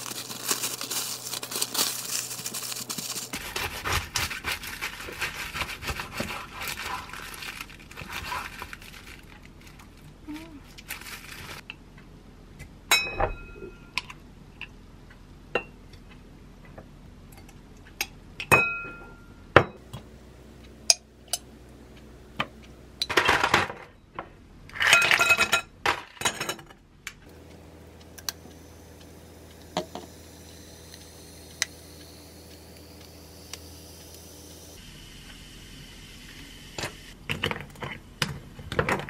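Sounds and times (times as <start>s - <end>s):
glass clinking and tapping: 12.9s - 14.1s, 18.4s - 19.8s.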